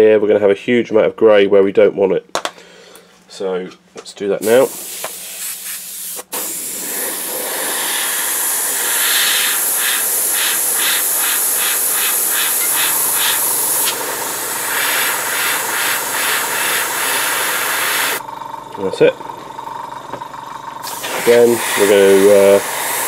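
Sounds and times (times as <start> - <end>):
airbrush hissing: 4.4 - 18.2, 20.8 - 23.0.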